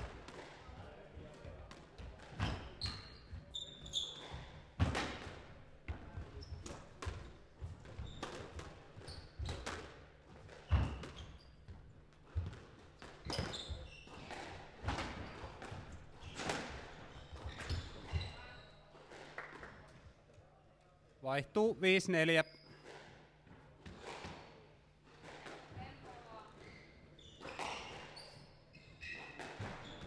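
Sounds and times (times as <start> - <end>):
shoes squeaking on wooden floor: 2.4 - 4.6, 7.9 - 8.4, 13.2 - 15.6, 16.2 - 18.8.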